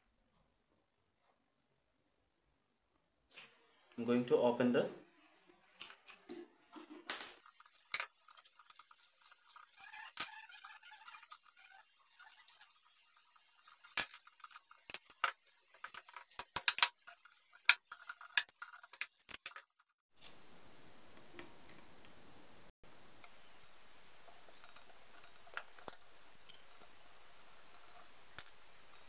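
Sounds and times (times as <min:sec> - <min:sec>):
faint steady hiss: 0:20.2 - 0:29.0.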